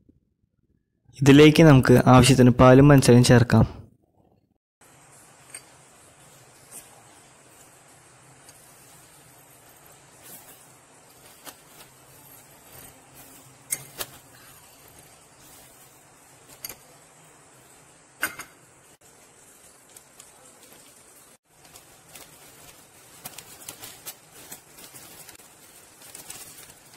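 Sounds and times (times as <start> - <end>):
spoon clinking glass dishes: 18.2 - 18.6.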